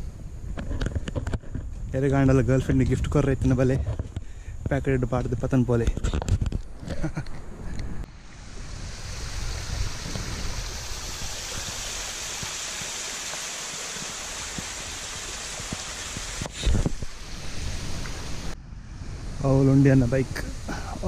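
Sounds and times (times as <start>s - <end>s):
waterfall splashing over rocks: 8.6s - 18.6s.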